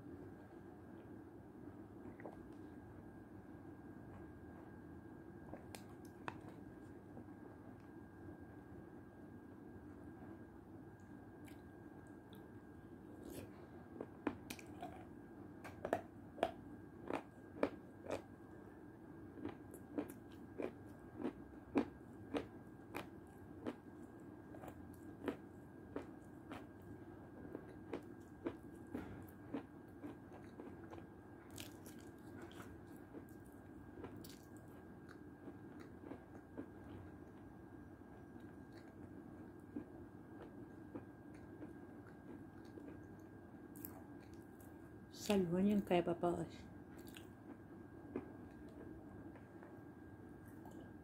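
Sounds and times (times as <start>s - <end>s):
chewing and wet mouth noises: 5.5s - 6.9s, 11.4s - 12.5s, 13.1s - 18.3s, 19.4s - 37.5s, 38.1s - 44.8s, 46.9s - 49.8s.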